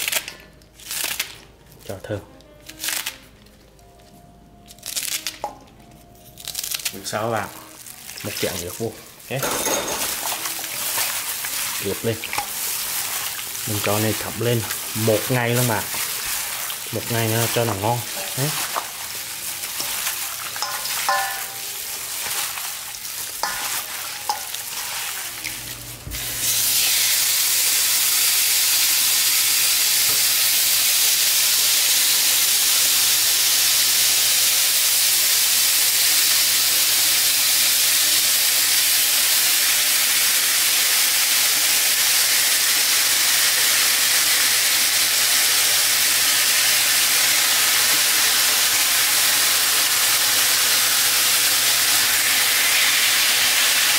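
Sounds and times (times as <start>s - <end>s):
meat sizzling in a pan: 6.4s - 53.9s
hands squelching meat in bowl: 10.0s - 25.6s.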